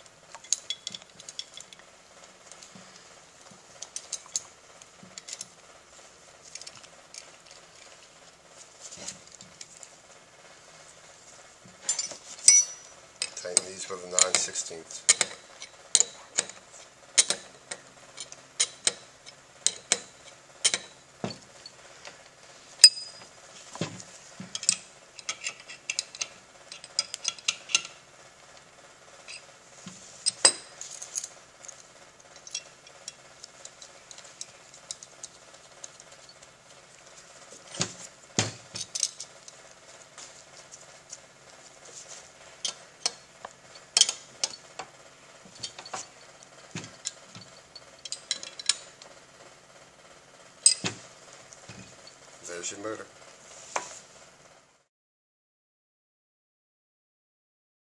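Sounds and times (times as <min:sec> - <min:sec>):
wrench clinking on metal fittings: 0:00.3 - 0:01.8, 0:11.8 - 0:16.6, 0:17.2 - 0:21.8, 0:22.8 - 0:23.2, 0:24.5 - 0:28.0, 0:29.2 - 0:29.5, 0:30.2 - 0:31.4, 0:32.3 - 0:36.4, 0:38.7 - 0:39.6, 0:42.6 - 0:44.8, 0:45.5 - 0:49.1, 0:50.6 - 0:51.0.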